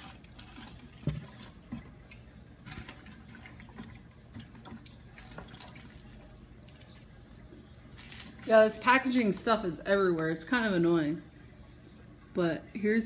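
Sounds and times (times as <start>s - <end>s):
water trickling and dripping: 0.0s - 13.0s.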